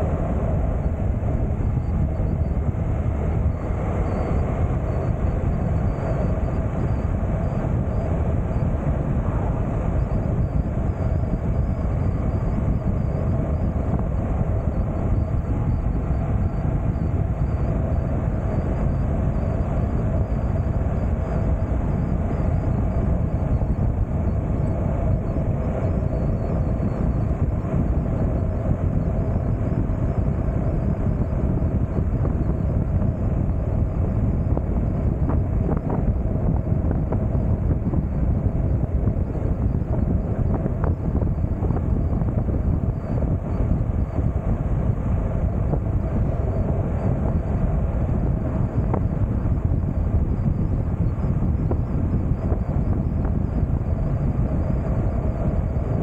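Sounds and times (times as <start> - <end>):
motorcycle engine and tyre noise: 0.0 - 56.0
wind rushing over microphone: 0.0 - 56.0.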